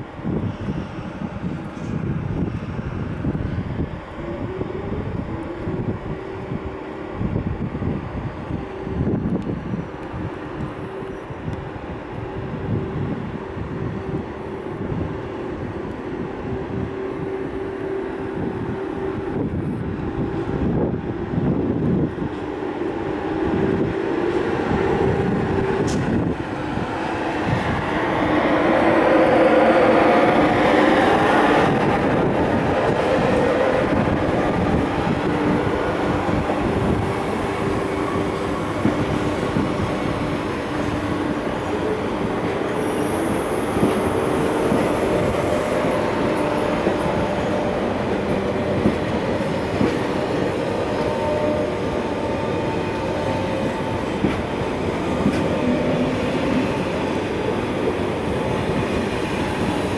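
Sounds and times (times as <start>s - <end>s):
train rumbling on track: 0.0s - 59.9s.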